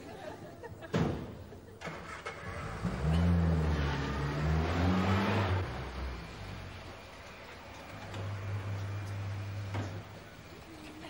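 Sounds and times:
small car engine revving: 0:01.8 - 0:06.8.

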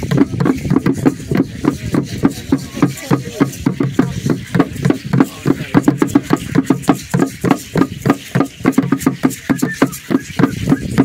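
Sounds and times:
drum beaten with sticks: 0:00.0 - 0:11.0.

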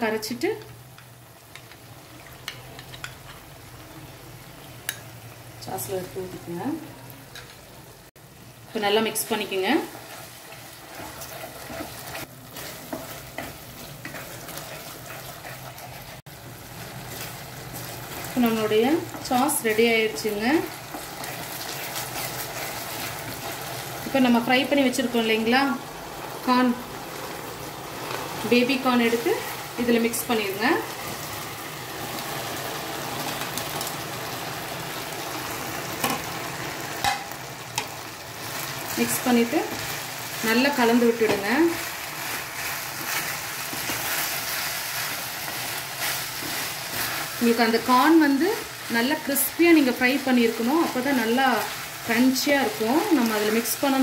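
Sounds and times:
sauce sizzling in a hot pan: 0:00.0 - 0:54.0
spoon scraping a pan: 0:02.4 - 0:03.5, 0:09.9 - 0:16.2, 0:19.0 - 0:23.8, 0:41.2 - 0:47.4.

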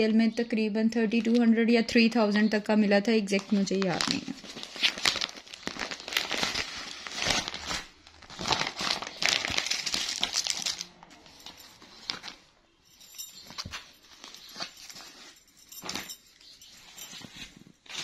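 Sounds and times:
plastic packaging crinkling: 0:03.3 - 0:12.5, 0:13.3 - 0:18.0
cloth rustling: 0:03.4 - 0:18.0.

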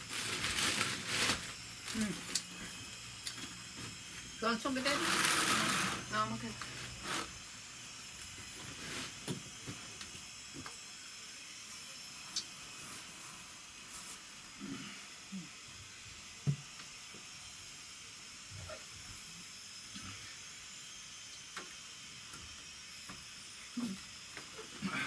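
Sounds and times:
bags rustling: 0:00.0 - 0:02.2.

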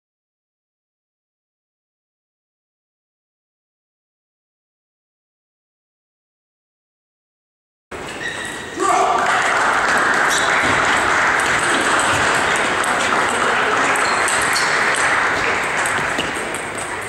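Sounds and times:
spectators applauding: 0:08.8 - 0:17.0.

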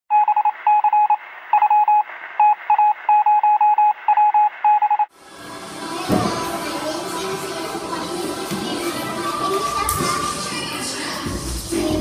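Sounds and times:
short electronic beeps: 0:00.1 - 0:05.1
music: 0:05.1 - 0:12.0.

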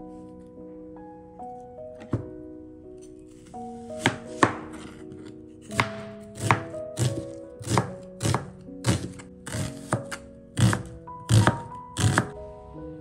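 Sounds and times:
background music: 0:00.0 - 0:13.0
knife cutting onion on cutting board: 0:04.0 - 0:12.3.

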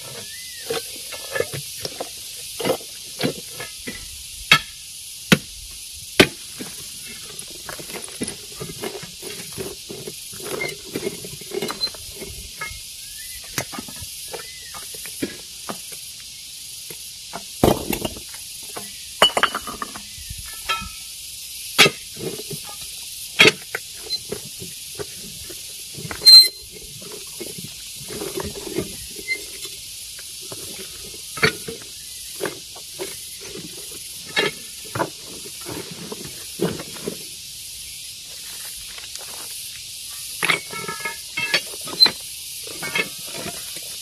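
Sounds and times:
steady high hiss: 0:00.0 - 0:44.0
stone knocking and clinking: 0:19.2 - 0:20.0.

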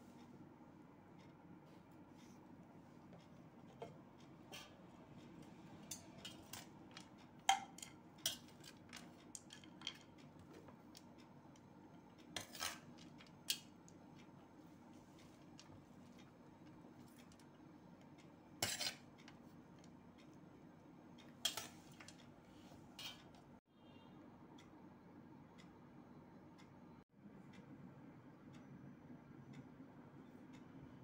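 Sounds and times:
steel spoon scraping a plate: 0:12.4 - 0:13.0, 0:18.6 - 0:19.1, 0:23.0 - 0:23.4.

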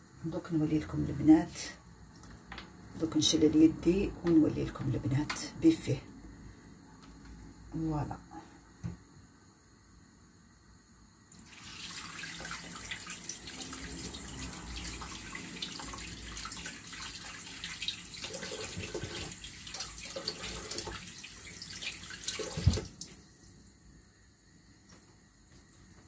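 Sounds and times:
tap water splashing on hands: 0:11.5 - 0:23.2.

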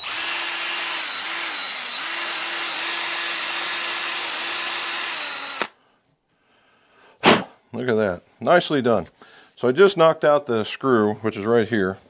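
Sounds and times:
wire brush power tool whine: 0:00.0 - 0:05.7.

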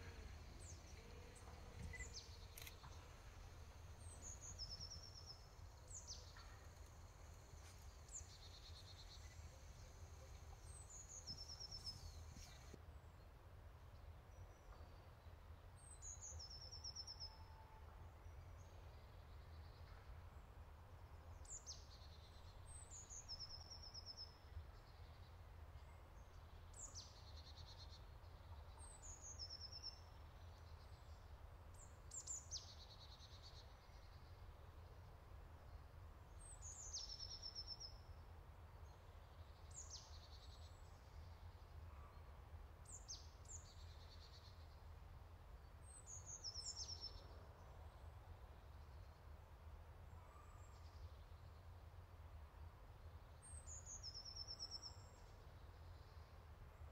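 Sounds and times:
bird singing: 0:00.0 - 0:12.8.

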